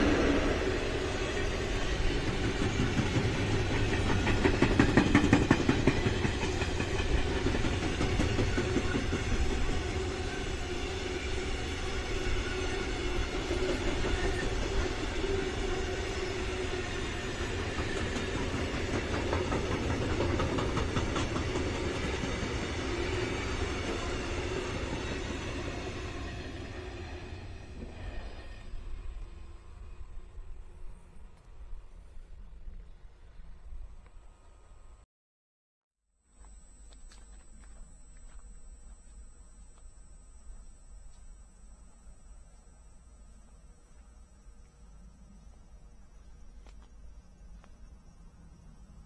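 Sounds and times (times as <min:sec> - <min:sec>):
train wheels rumbling on rails: 0:00.0 - 0:30.8
wheels clattering over rail joints: 0:02.1 - 0:09.5, 0:17.4 - 0:22.8.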